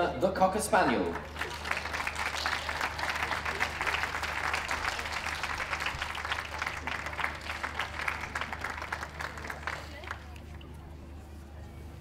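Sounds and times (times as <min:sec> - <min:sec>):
audience applauding: 0:00.8 - 0:10.4.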